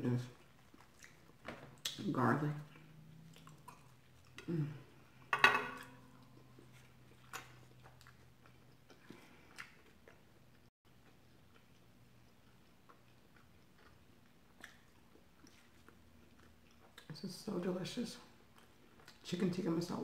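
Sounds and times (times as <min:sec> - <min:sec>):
person chewing: 0:00.3 - 0:02.0, 0:02.7 - 0:17.1, 0:18.4 - 0:19.2.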